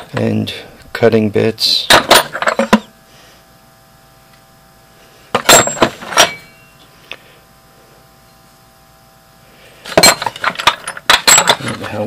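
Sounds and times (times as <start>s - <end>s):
metal tools clinking and rattling: 1.9s - 2.9s, 5.4s - 6.6s, 10.0s - 12.0s
metallic ring: 5.4s - 6.9s, 9.9s - 11.9s.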